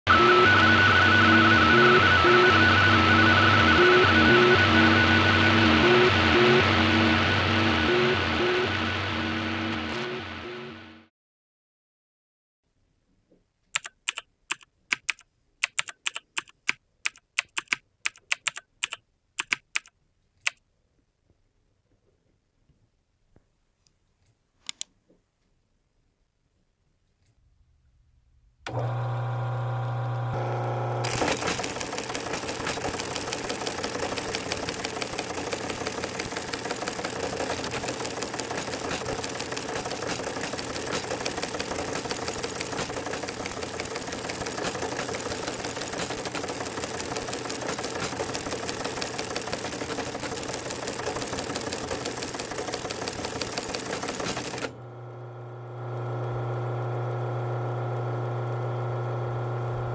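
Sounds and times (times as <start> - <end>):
motor humming: 0.1 - 11.0, 28.6 - 59.9
teleprinter clattering: 31.0 - 54.8.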